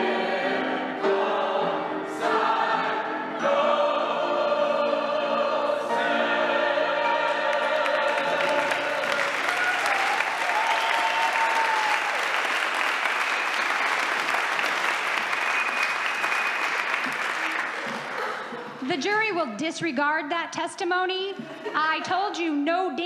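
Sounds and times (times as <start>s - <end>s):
group of voices singing: 0.0s - 9.7s
audience applauding: 7.5s - 18.8s.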